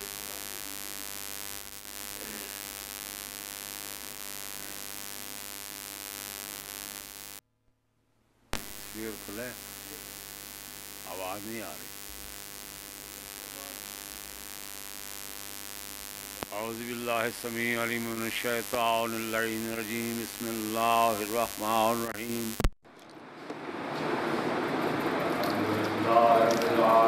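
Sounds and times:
electrical mains hum with hiss: 0.0 - 7.4, 8.6 - 27.0
faint voice sounds: 2.2 - 2.6.

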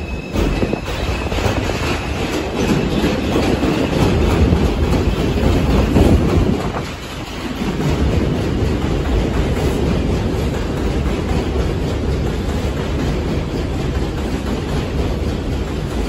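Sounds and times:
clatter over rail joints: 0.0 - 16.0
train wheels rumbling on rail: 0.0 - 16.0.

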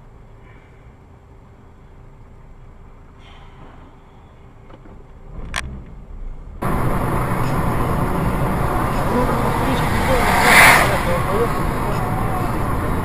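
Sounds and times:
road and engine noise: 0.0 - 13.0
quiet low rumble: 5.2 - 13.0.

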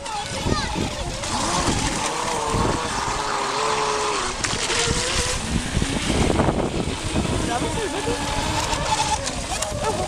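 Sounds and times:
model boat motor whining: 0.0 - 10.0
water noise: 0.0 - 10.0
wind: 0.0 - 10.0.

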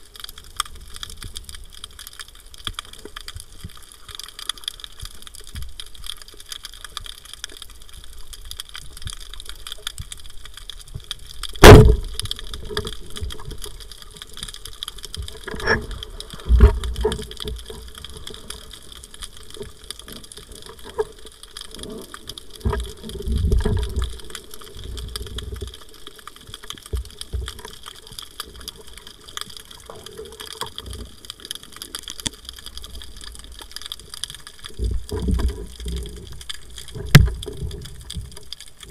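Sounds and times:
underwater hiss and crackle: 0.0 - 38.9
speargun firing crack: 11.6 - 12.0.

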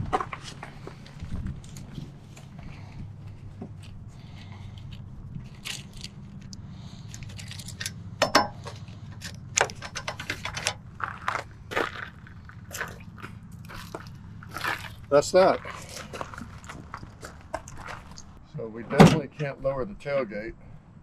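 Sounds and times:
metal clicks and clanks: 5.4 - 11.2.

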